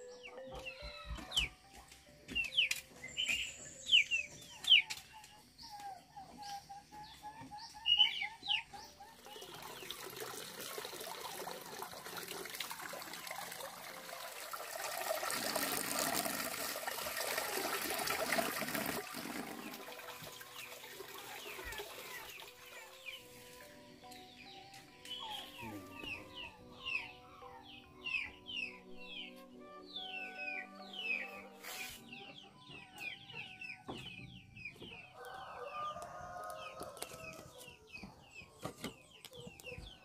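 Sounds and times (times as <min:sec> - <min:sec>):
small birds chirping: 0:02.3 - 0:10.0, 0:20.5 - 0:40.0
water running and splashing: 0:09.2 - 0:23.0.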